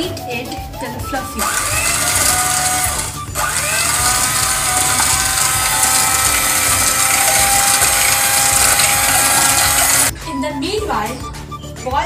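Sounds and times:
electric hand mixer whining: 1.3s - 10.1s.

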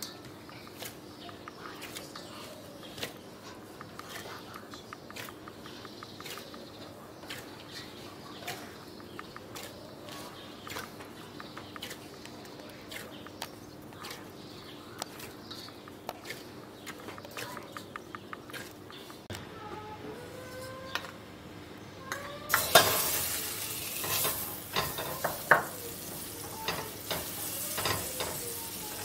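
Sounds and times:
hands kneading sticky dough: 0.0s - 19.3s
sharp clicks: 0.4s - 2.2s, 2.9s - 7.5s, 15.0s - 19.4s.

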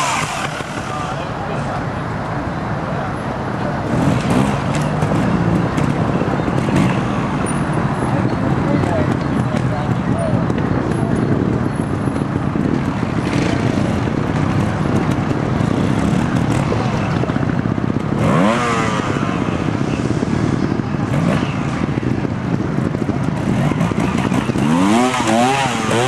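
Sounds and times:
motorcycle engine revving: 0.0s - 1.9s, 3.6s - 26.0s.

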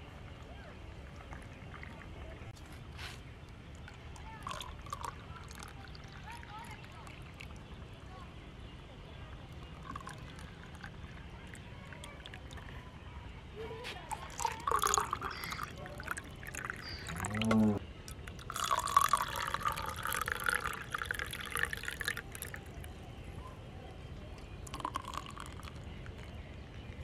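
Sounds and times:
milk pouring into glasses: 1.0s - 2.5s, 3.6s - 7.8s, 9.4s - 12.8s, 14.0s - 23.0s, 24.4s - 26.5s.

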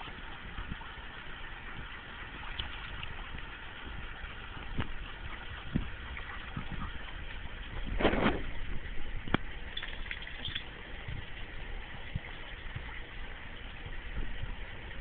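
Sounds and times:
soft low thumps: 2.6s - 9.8s, 10.5s - 15.0s.

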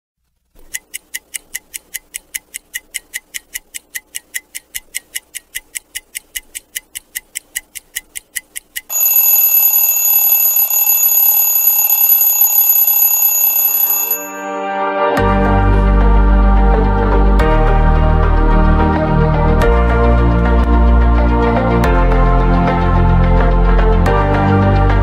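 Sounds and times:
clock ticking: 0.4s - 14.4s
alarm clock ringing: 8.9s - 14.7s.

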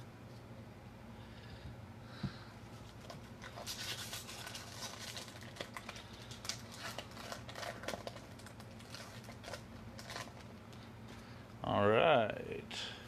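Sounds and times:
wrapper crinkling: 2.9s - 10.6s.

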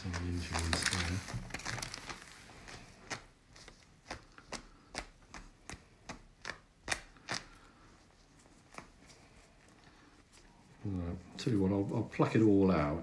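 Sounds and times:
crisp feather rustles: 0.0s - 4.4s.

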